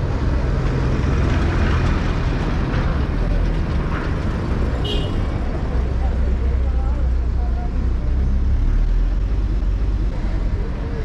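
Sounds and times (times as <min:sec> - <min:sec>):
low engine rumble of traffic: 0:00.0 - 0:11.0.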